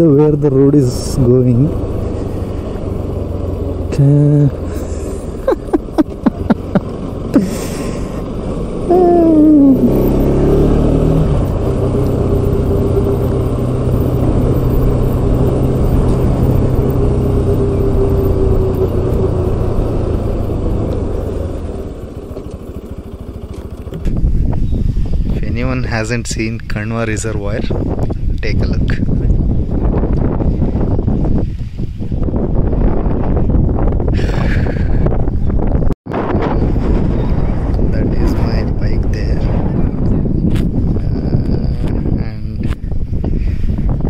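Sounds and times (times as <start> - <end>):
motorcycle engine running: 0.0 - 25.8.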